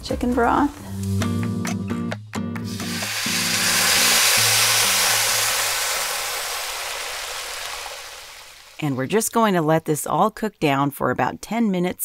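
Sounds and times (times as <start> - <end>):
soft background music: 0.0 - 5.3
broth sizzling in hot oil: 2.7 - 8.8.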